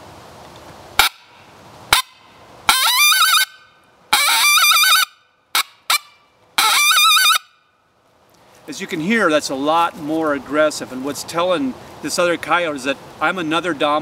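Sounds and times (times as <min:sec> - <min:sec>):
coyote call barks: 0:01.9 - 0:07.5.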